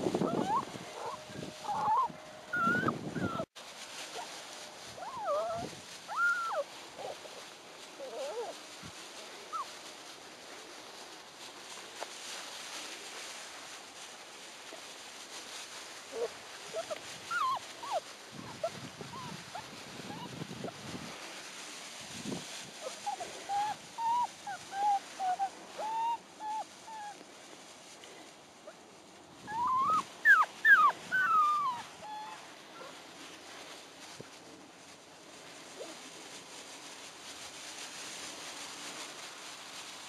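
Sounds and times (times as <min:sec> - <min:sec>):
rustling through dry grass: 0:00.0 - 0:40.0
puppies whining and yipping: 0:00.1 - 0:03.5, 0:05.0 - 0:07.2, 0:08.0 - 0:08.5, 0:16.2 - 0:20.4, 0:22.8 - 0:27.2, 0:29.5 - 0:33.0.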